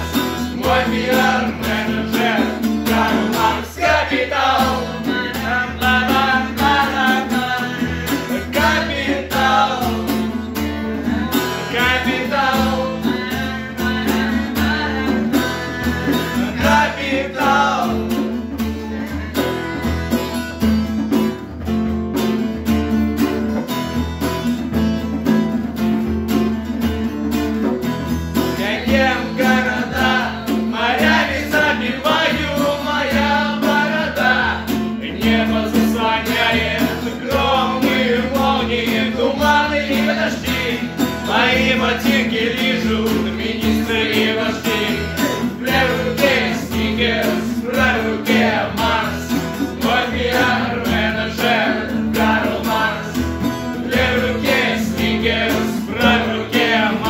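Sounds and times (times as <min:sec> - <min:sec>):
acoustic guitar strumming: 0:00.0 - 0:57.0
man singing: 0:00.3 - 0:10.4, 0:11.0 - 0:19.8, 0:28.5 - 0:57.0.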